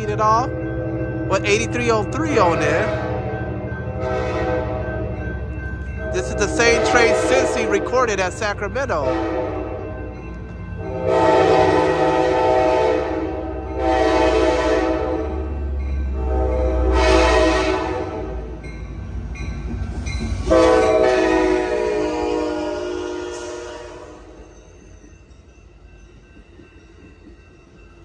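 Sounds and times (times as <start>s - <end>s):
low rumble of train: 0.0s - 28.0s
locomotive horn blasts: 4.0s - 4.9s, 6.0s - 7.8s, 8.9s - 9.9s, 10.8s - 15.5s, 16.1s - 18.5s, 20.5s - 24.4s.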